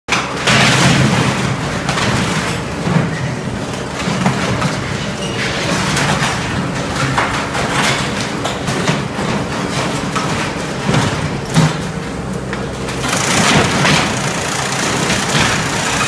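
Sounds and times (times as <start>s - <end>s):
diesel engine running hard: 11.6s - 16.0s
wooden boards cracking and splintering: 12.9s - 16.0s.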